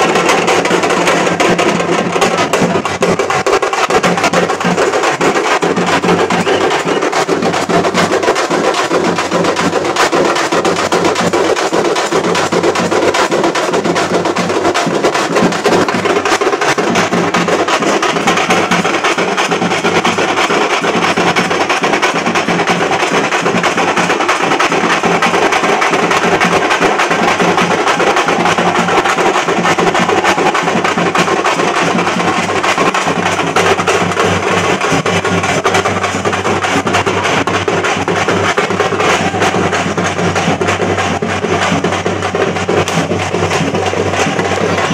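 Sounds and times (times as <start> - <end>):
frame drums beaten with sticks: 0.0 - 44.9.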